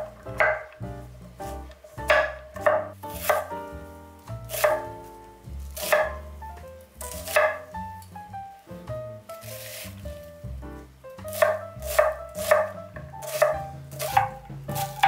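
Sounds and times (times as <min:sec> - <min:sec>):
knife chopping on wooden board: 0:00.0 - 0:00.8, 0:01.5 - 0:03.6, 0:04.5 - 0:06.3, 0:07.0 - 0:07.8, 0:11.3 - 0:15.0.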